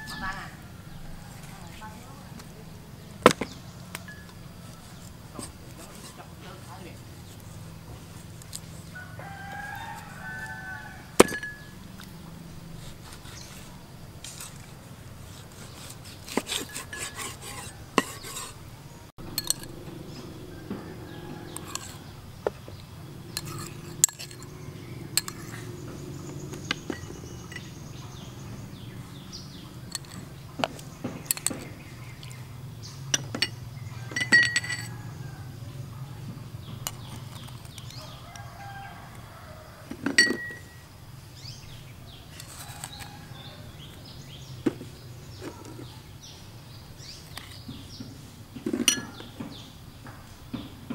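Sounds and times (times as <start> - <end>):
spoon clinking on ceramic dishes: 11.2 - 11.8, 19.3 - 19.8, 23.4 - 25.6, 26.7 - 28.2, 29.9 - 30.3, 31.2 - 31.7, 33.2 - 35.1, 40.1 - 40.8, 48.7 - 49.3.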